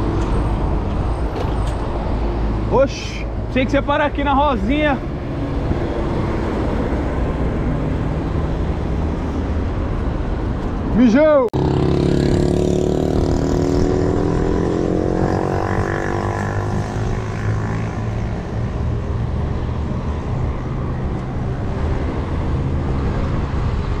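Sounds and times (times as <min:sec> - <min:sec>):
bicycle road rumble: 0:00.0 - 0:11.0, 0:11.6 - 0:24.0
wind: 0:00.0 - 0:24.0
vehicle engine speeding up: 0:04.9 - 0:10.4, 0:11.6 - 0:24.0.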